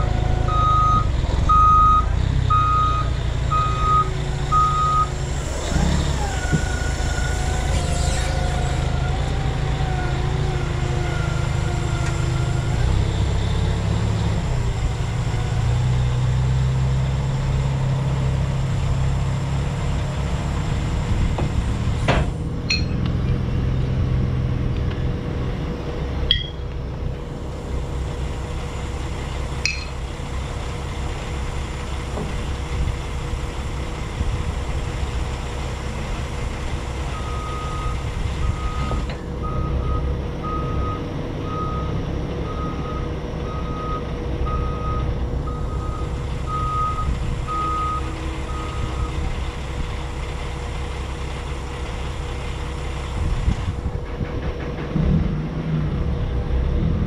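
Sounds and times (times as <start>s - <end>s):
reversing alarm beeping: 0.0s - 8.7s, 37.1s - 49.2s
engine running: 0.0s - 57.0s.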